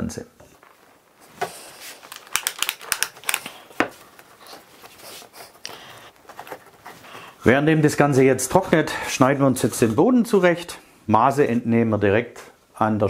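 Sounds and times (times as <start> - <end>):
wooden box being handled: 3.2 - 7.4.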